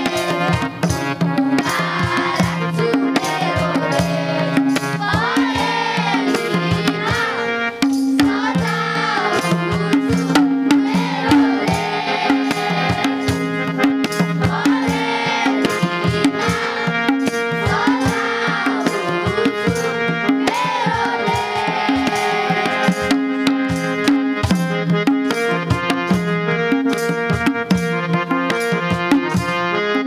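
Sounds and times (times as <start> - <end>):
children's choir singing: 0.0 - 23.7
electronic keyboard: 0.0 - 30.0
hand drums: 0.0 - 30.0.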